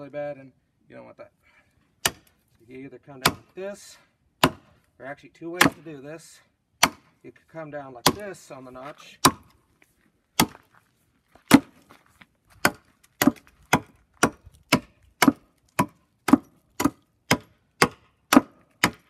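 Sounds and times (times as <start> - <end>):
axe chopping log: 2.0 - 2.4, 3.2 - 3.6, 4.4 - 4.8, 5.6 - 5.9, 6.8 - 7.2, 8.0 - 8.4, 9.2 - 9.6, 10.4 - 10.6, 11.5 - 11.9, 12.6 - 19.0.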